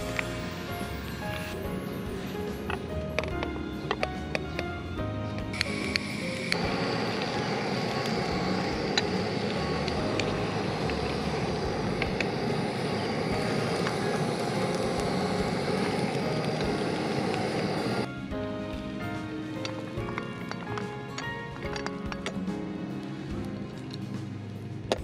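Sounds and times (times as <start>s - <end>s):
music: 0.0s - 25.0s
gas stove flame roar: 5.4s - 18.1s.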